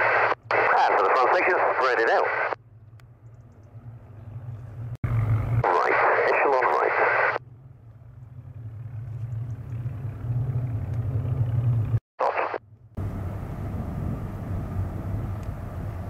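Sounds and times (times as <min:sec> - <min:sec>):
airband radio chatter: 0:00.0 - 0:02.6, 0:05.6 - 0:07.4, 0:12.2 - 0:12.6
distant piston aircraft engines droning: 0:00.0 - 0:16.0.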